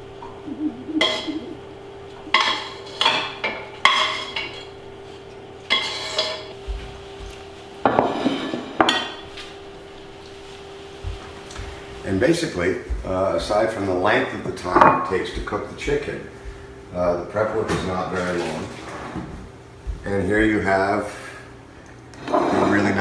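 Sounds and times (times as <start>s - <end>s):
steady low hum: 0.0s - 17.5s
metal utensil scraping a metal pan: 5.8s - 6.4s.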